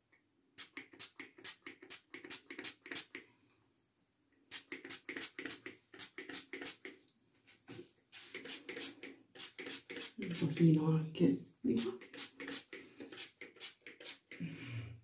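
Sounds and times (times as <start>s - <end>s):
spray bottle misting in puffs: 0.6s - 3.2s, 4.5s - 6.9s, 7.5s - 10.6s, 11.8s - 14.4s.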